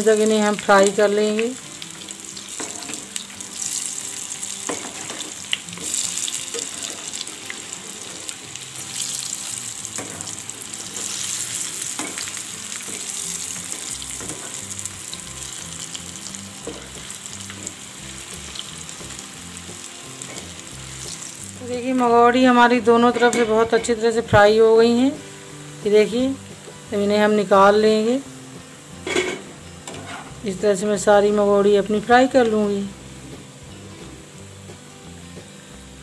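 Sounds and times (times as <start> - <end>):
fritters sizzling in hot oil: 0.0 - 36.0
spoon scraping and tapping pan: 23.1 - 24.0.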